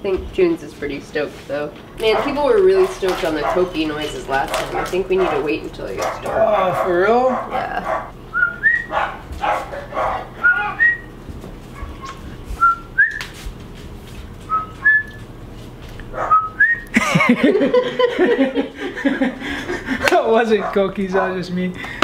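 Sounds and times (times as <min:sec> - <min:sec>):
voices: 0:00.0 - 0:11.1, 0:16.9 - 0:22.0
man whistling through hands: 0:08.3 - 0:08.9, 0:10.4 - 0:11.1, 0:12.6 - 0:13.4, 0:14.5 - 0:15.2, 0:16.3 - 0:16.9
people laughing: 0:16.9 - 0:20.6.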